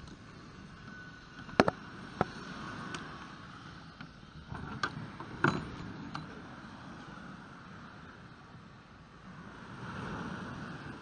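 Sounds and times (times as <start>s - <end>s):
kayak frame knocks and clicks: 1.5s - 2.3s, 4.6s - 6.3s.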